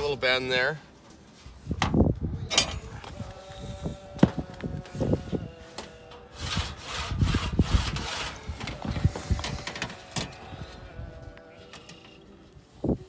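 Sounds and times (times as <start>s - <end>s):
sheet metal scraping: 2.5s - 12.5s.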